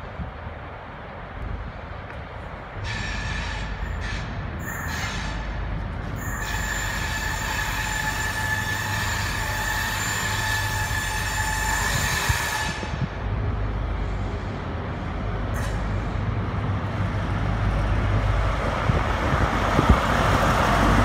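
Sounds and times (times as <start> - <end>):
train rumbling slowly: 0.0 - 21.0
train wheels squealing: 2.8 - 13.0.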